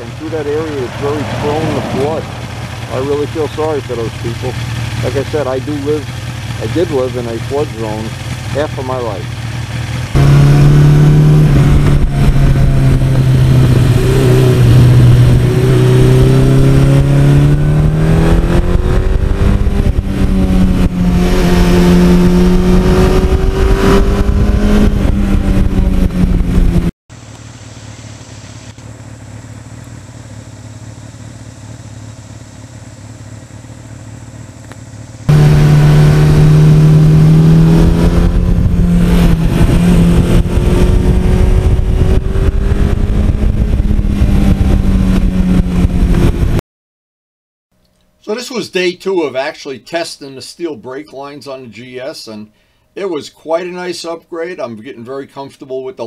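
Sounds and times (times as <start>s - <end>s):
motorcycle engine running: 0.0s - 46.6s
wind noise: 10.2s - 26.9s, 35.3s - 46.6s.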